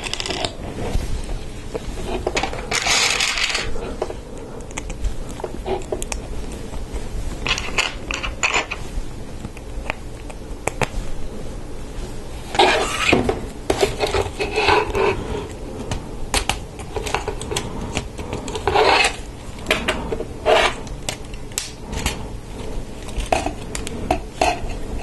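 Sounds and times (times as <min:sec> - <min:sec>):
plastic parts scraping: 0:00.0 - 0:01.1, 0:01.7 - 0:06.2, 0:07.4 - 0:08.8, 0:12.5 - 0:25.0.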